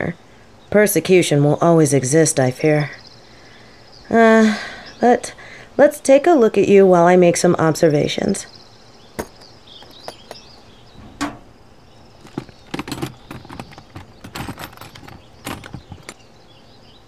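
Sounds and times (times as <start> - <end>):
high chirping: 8.4 - 17.0.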